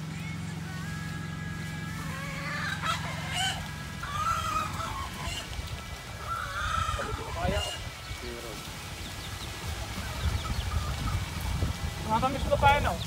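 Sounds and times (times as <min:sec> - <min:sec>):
low steady hum: 0:00.0 - 0:13.0
chickens clucking: 0:01.8 - 0:13.0
rooster crowing: 0:01.9 - 0:07.8.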